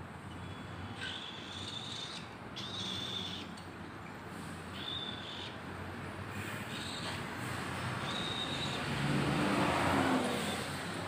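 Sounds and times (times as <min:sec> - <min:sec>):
chicks raspy begging calls: 0:00.6 - 0:03.6.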